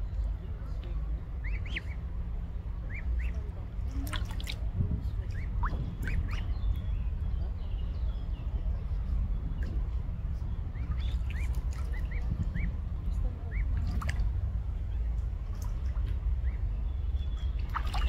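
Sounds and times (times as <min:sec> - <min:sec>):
low rumble: 0:00.0 - 0:18.0
cygnets peeping: 0:01.2 - 0:18.0
small water splashes: 0:02.9 - 0:06.5, 0:10.7 - 0:12.6, 0:13.5 - 0:18.0.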